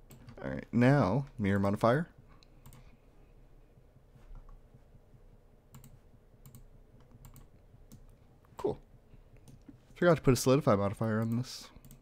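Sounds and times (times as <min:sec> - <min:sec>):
computer mouse and keyboard clicks: 0:05.7 - 0:08.2, 0:11.0 - 0:12.0.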